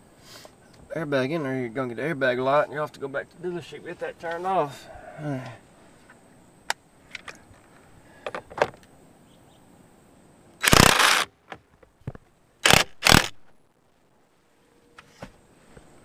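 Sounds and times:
cordless power driver bursts: 10.6s - 11.3s, 12.6s - 13.4s.

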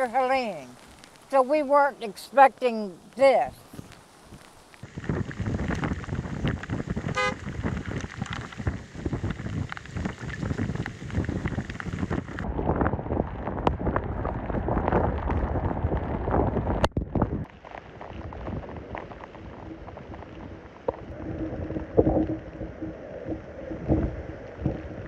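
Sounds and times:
rain: 0.0s - 25.0s
wind buffeting microphone: 3.0s - 25.0s
short vehicle horn toot: 7.1s - 7.4s.

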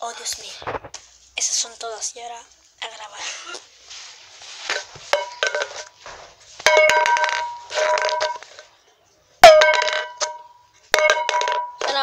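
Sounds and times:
can knocked with ringing metal end: 6.7s - 8.4s, 9.4s - 12.0s.

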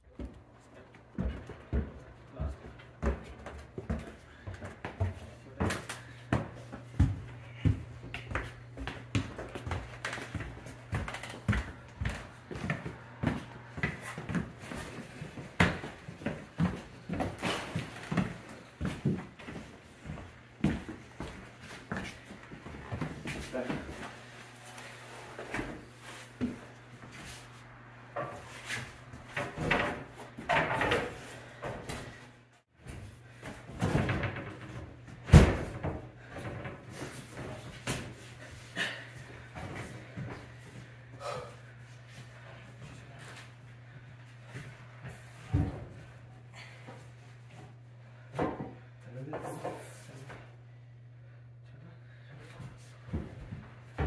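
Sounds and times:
footsteps on floor: 0.1s - 27.6s.

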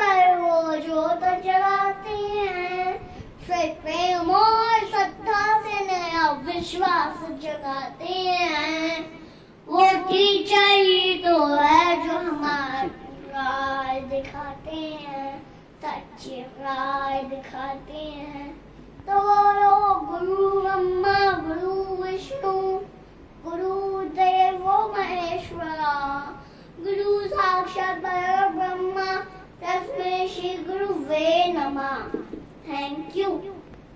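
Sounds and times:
boy singing unaccompanied: 0.0s - 33.6s.

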